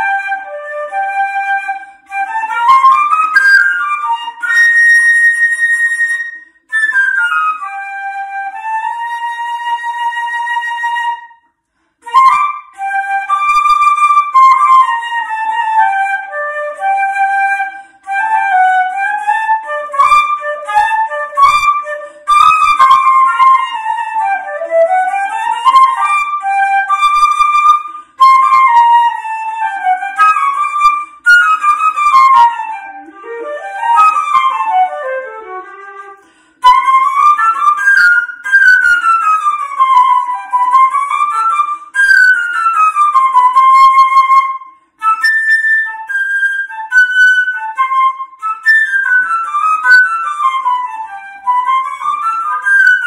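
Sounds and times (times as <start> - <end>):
instrumental melody in running notes: 12.1 - 53.0.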